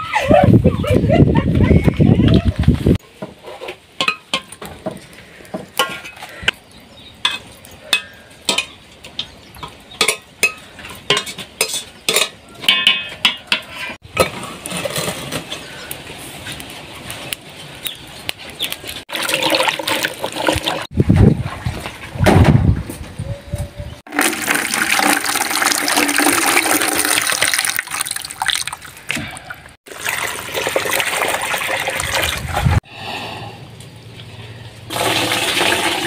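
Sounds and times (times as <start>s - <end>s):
clinking pots and dishes: 4.0s - 6.4s, 7.2s - 15.7s
rushing water: 24.1s - 32.8s.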